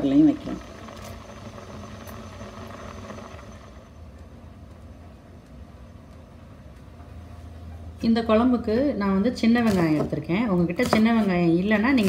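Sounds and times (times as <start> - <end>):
pot boiling: 0.0 - 4.0.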